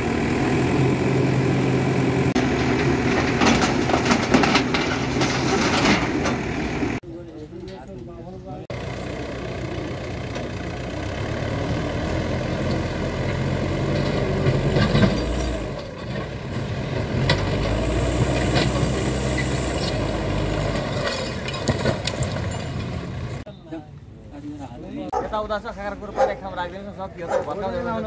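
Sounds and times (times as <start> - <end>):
diesel engine running under load: 0.0 - 7.0, 8.7 - 23.4
falling bricks clattering: 2.5 - 6.4.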